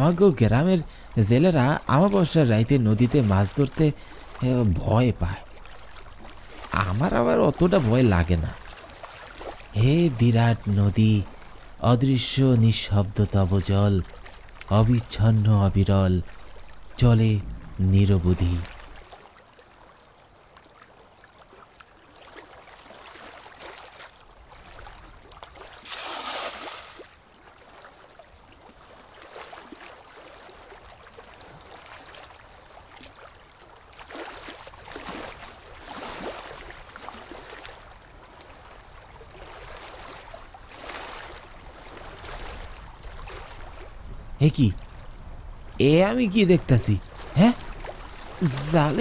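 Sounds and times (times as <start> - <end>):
river water gurgling and lapping: 0.0 - 49.0
water splash: 25.6 - 27.4.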